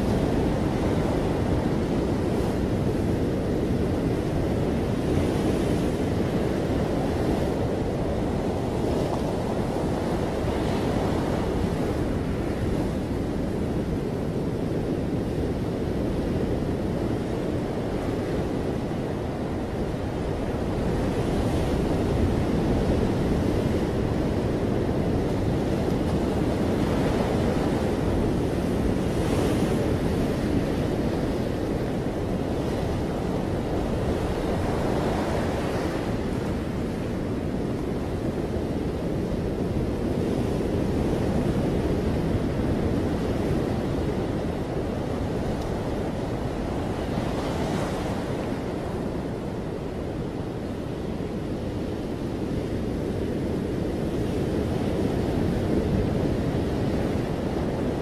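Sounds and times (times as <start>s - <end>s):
ocean surf breaking: 0.0s - 58.0s.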